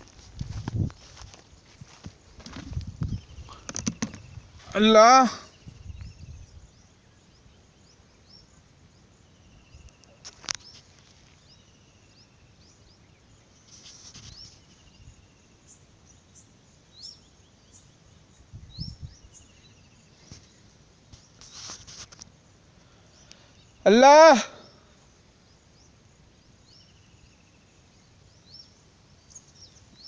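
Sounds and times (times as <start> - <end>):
low bumps: 0.0 - 4.8
rising bird chirps: 2.6 - 22.0, 22.9 - 26.0.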